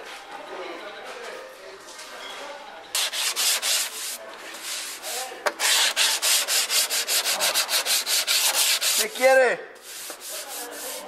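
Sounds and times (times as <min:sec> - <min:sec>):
sandpaper rubbing: 0:03.0 - 0:11.0.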